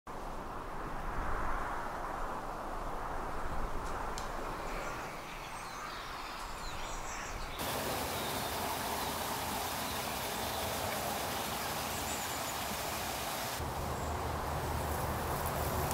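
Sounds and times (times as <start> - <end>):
steady rushing noise: 0.1 - 5.2.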